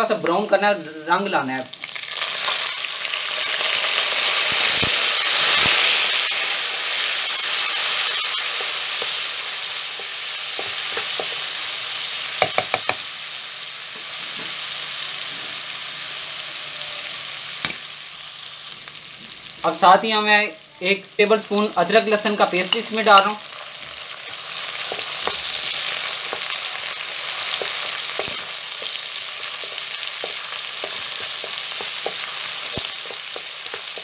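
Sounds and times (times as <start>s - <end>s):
onions sizzling in oil: 0.0s - 34.0s
wooden spatula stirring: 24.3s - 34.0s.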